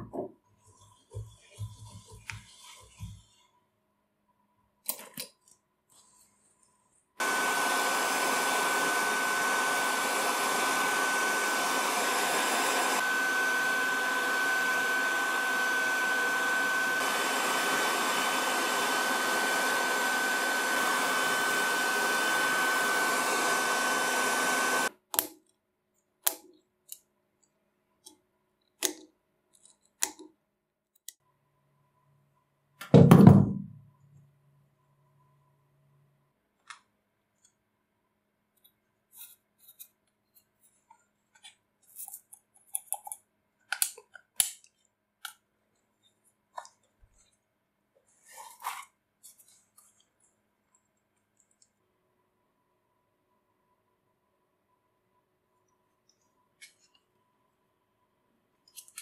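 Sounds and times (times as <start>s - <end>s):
heat gun blowing with high whine: 7.2s - 24.9s.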